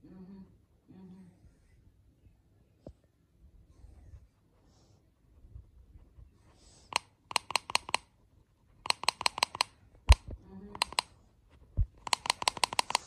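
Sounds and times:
fingers tapping a cup: 12.1s - 13.0s.

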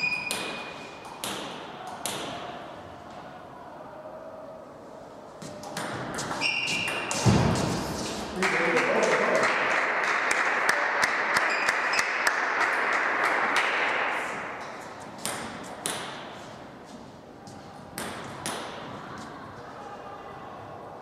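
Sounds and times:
table tennis ball bouncing: 0.0s - 2.3s, 5.6s - 7.7s, 15.2s - 16.3s, 17.9s - 18.9s.

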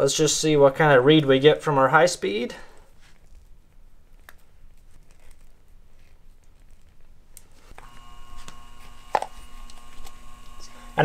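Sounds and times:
blower motor humming: 7.6s - 11.0s.

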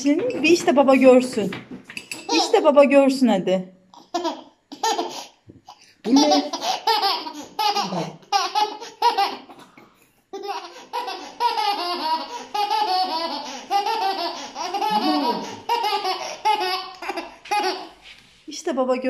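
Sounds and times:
baby laughing: 3.9s - 5.4s, 6.0s - 18.0s.

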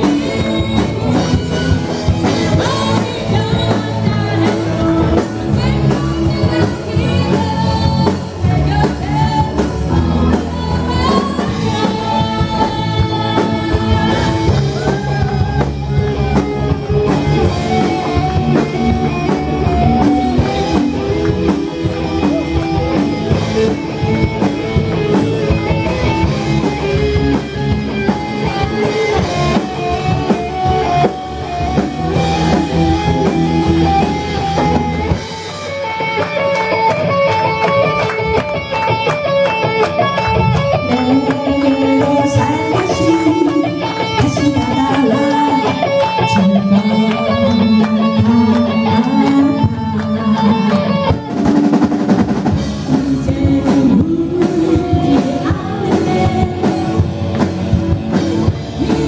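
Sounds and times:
woman singing into a microphone: 0.0s - 1.4s, 2.2s - 16.3s, 40.8s - 51.9s, 52.8s - 57.2s
bass guitar: 0.0s - 59.0s
drum kit: 0.0s - 59.0s
electric guitar: 0.0s - 59.0s
keyboard: 0.0s - 59.0s.

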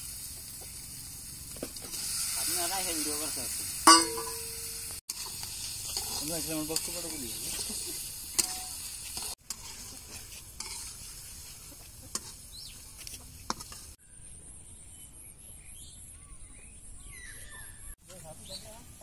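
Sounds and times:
food sizzling in a wok: 0.0s - 14.0s
spatula scraping a pan: 3.9s - 14.0s
faint high chirping calls: 14.0s - 18.8s.

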